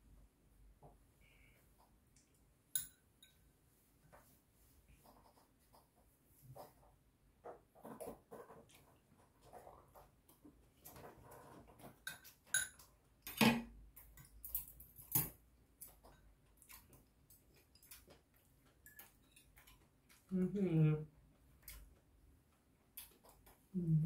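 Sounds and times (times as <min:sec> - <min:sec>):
utensils clinking against bowls: 0:12.0 - 0:13.6
soft chewing: 0:15.8 - 0:20.4.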